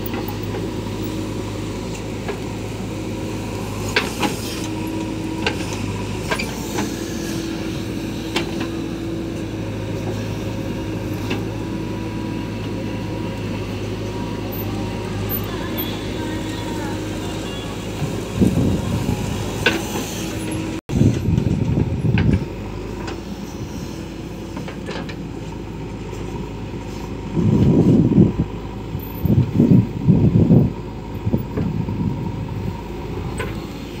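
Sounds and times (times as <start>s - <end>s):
diesel engine running under load: 0.0s - 34.0s.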